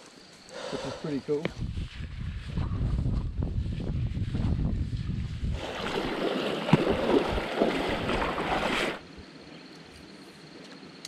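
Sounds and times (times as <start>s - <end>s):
creek water rushing and splashing: 5.5s - 9.1s.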